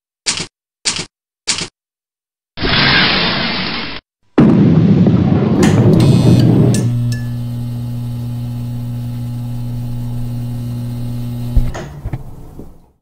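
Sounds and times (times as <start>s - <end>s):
sharp click: 0.3s - 1.7s, 5.6s - 7.5s
low electronic hum: 5.6s - 12.4s.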